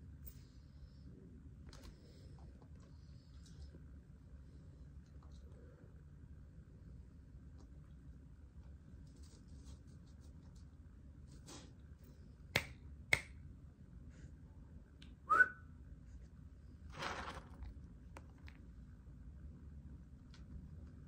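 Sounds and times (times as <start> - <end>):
fingers snapping: 12.6 - 13.4.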